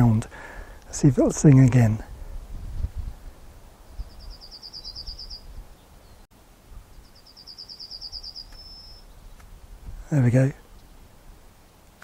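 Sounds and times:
wind rumbling on microphone: 0.0s - 7.2s, 8.5s - 11.6s
yellowhammer singing: 3.0s - 9.5s.

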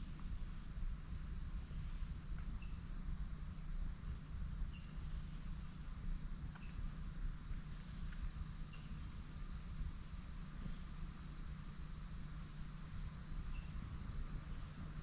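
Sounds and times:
insect chorus drone: 0.0s - 15.0s.

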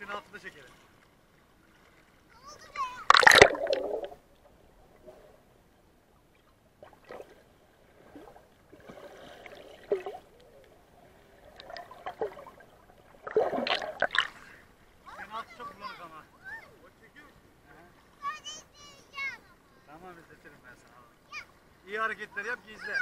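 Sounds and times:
underwater water movement: 0.0s - 19.9s
water splashing: 0.0s - 23.0s
gurgles and bubbling: 3.0s - 5.4s, 6.4s - 14.6s.

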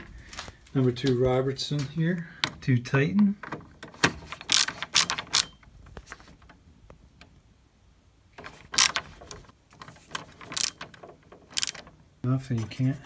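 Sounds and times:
screwdriver clicking and scraping metal: 3.8s - 5.6s, 8.4s - 11.9s.

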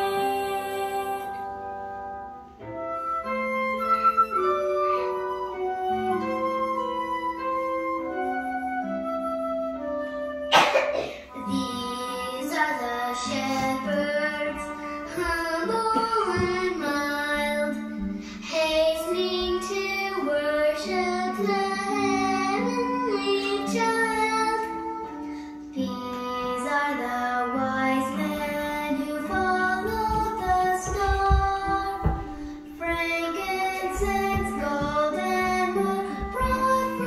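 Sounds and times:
instrumental accompaniment: 0.0s - 37.0s
high singing voice: 10.6s - 37.0s.

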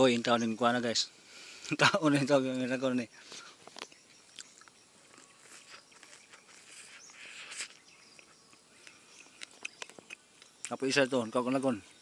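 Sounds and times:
chewing corn on the cob: 3.7s - 10.8s.

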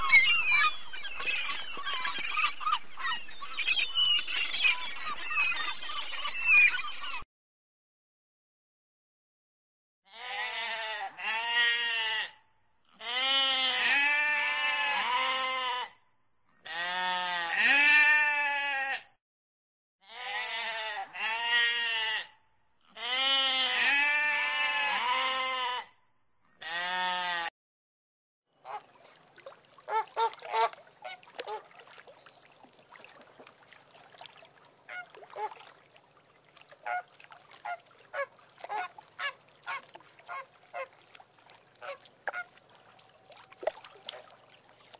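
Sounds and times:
sheep bleating: 10.1s - 16.0s, 16.6s - 19.1s, 20.0s - 22.3s, 22.9s - 25.9s, 26.6s - 27.5s
flamingos honking: 29.9s - 31.8s, 36.8s - 41.0s, 41.8s - 42.6s.

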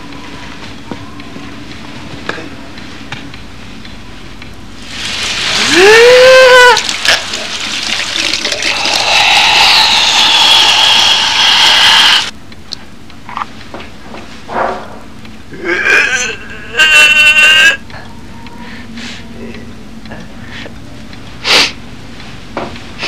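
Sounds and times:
water gushing from spray: 4.8s - 12.3s
short pitched cry: 5.6s - 6.9s, 15.9s - 17.8s.

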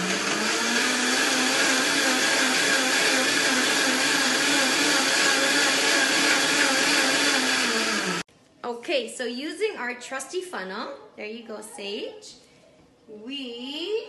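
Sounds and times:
blender motor whirring: 0.0s - 8.3s.

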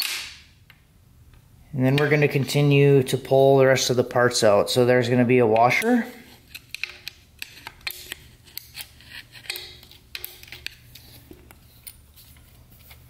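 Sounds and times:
screwdriver clicking and scraping metal: 5.8s - 13.0s.

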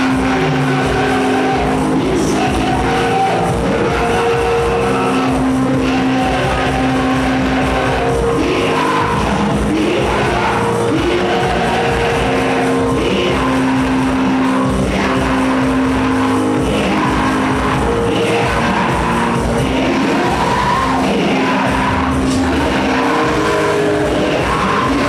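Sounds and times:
voices singing: 0.0s - 25.0s.

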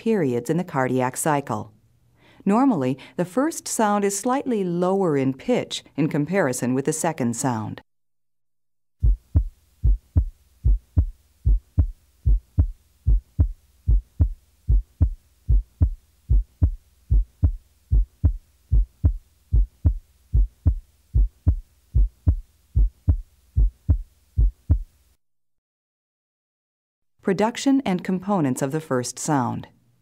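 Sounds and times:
heartbeat lub-dub: 9.0s - 25.0s.

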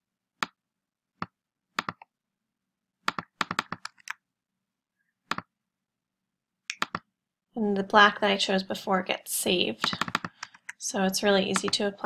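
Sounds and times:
mouse and keyboard clicks: 1.2s - 2.1s, 3.1s - 4.2s, 6.7s - 7.1s, 9.8s - 10.8s, 11.6s - 11.8s.

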